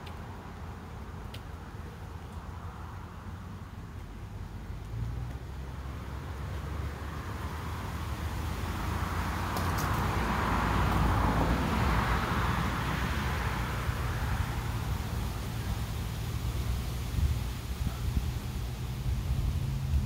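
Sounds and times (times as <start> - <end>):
road traffic rumble: 0.0 - 20.0
vehicle passing by: 4.6 - 20.0.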